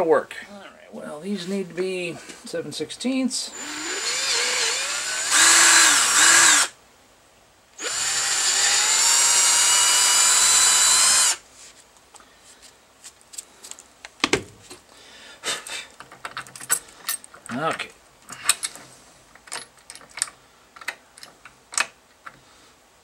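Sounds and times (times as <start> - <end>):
cordless drill drilling plastic: 3.5 - 6.7, 7.8 - 11.4.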